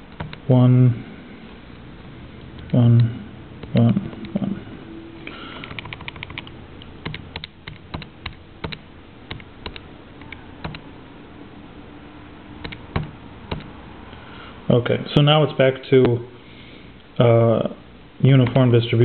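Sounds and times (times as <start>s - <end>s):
calculator keys clicking: 0.1s - 0.4s, 5.6s - 10.8s, 12.6s - 13.7s.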